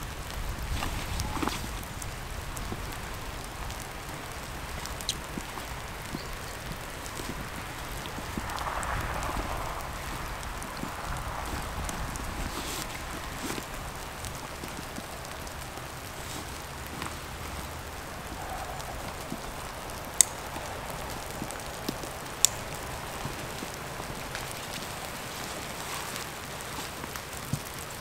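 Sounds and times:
rain-like hiss: 0.0s - 28.0s
sharp clicks: 17.0s - 24.9s.

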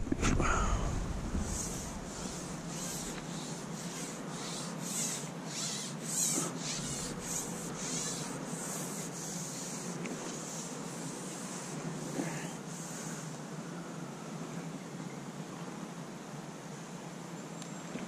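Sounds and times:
rhythmic hissy scraping: 1.3s - 13.6s.

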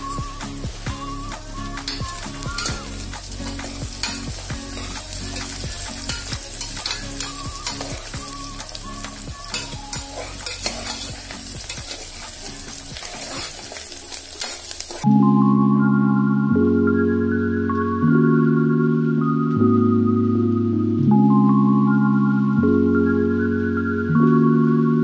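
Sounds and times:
onions sizzling in a pot: 0.0s - 15.1s
spoon scraping and clicking on pot: 6.1s - 8.0s, 9.5s - 12.1s.

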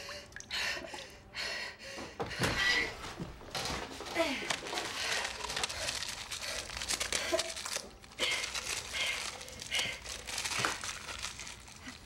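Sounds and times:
wrapping crinkling and rustling: 3.5s - 12.0s.

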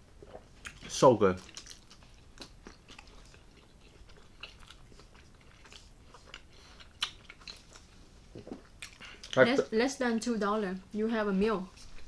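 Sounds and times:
wet chewing clicks: 0.2s - 9.6s.

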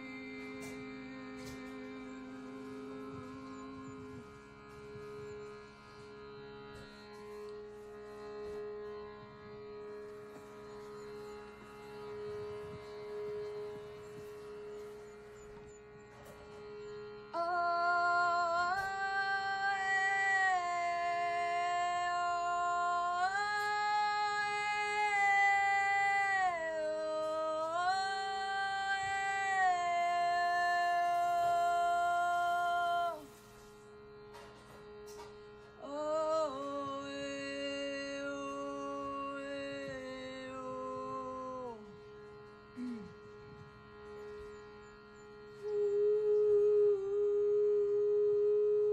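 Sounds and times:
woman singing long wordless notes: 0.0s - 4.9s, 17.3s - 33.7s, 35.8s - 43.3s, 45.5s - 48.9s
steady drone tone: 0.0s - 48.9s.

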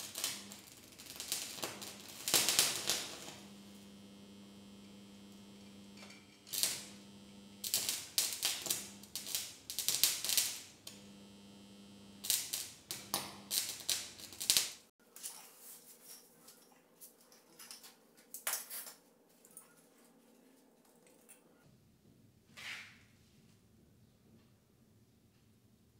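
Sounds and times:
transformer hum: 0.0s - 14.6s
welding arc crackling: 0.0s - 14.9s.

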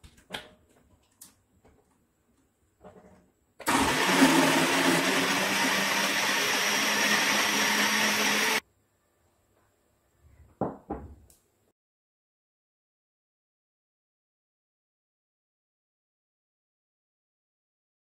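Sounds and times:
blender motor running: 3.7s - 8.6s.

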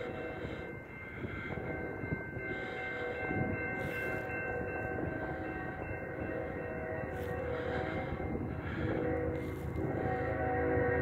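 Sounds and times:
low train rumble: 0.0s - 11.0s
distant locomotive horn: 5.0s - 11.0s.

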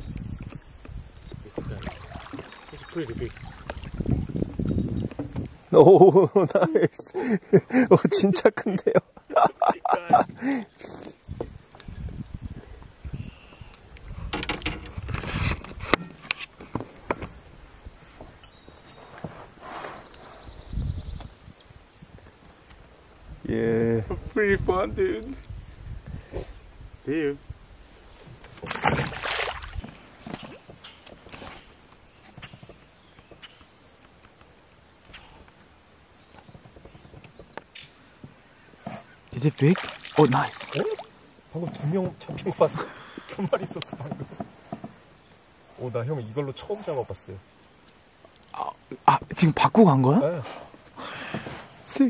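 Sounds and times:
small splashes and knocks: 1.3s - 5.5s, 28.5s - 31.5s, 39.4s - 41.2s
fish splashing into water: 1.6s - 4.0s, 28.6s - 29.8s, 39.6s - 41.1s
rustling and scuffling: 14.9s - 20.2s.

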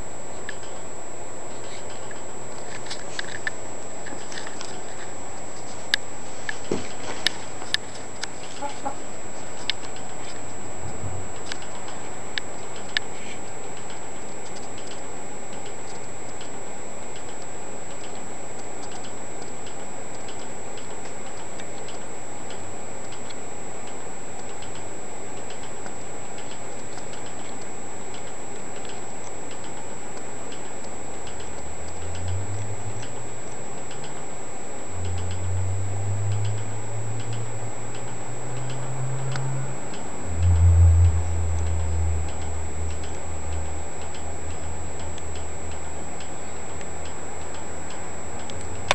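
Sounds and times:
room hiss: 0.0s - 48.9s
clock-like ticking: 18.9s - 33.3s, 35.0s - 48.6s
low rumbling: 35.0s - 44.5s.

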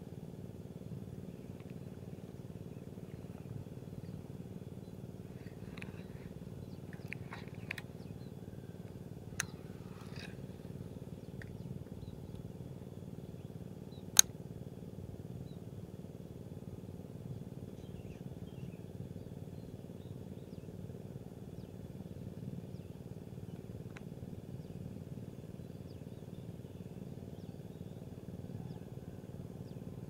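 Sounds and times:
low outdoor rumble: 0.0s - 30.0s
sharp clicks: 9.3s - 10.4s.

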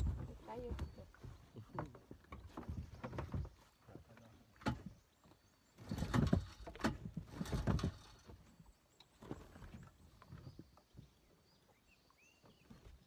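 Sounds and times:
knocks on outboard motor: 4.5s - 5.1s, 5.8s - 8.4s
thumps and clatter: 4.6s - 5.0s, 5.8s - 8.5s.

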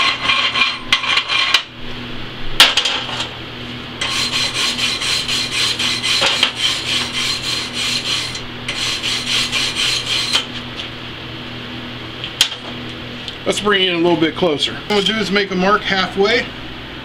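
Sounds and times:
wire brush scrubbing metal: 0.0s - 1.6s, 4.0s - 10.5s.

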